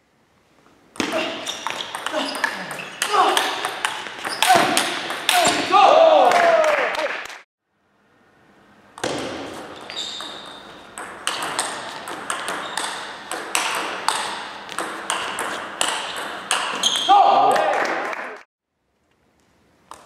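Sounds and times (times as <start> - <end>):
table tennis ball hits: 1.0 - 5.8, 9.0 - 17.1.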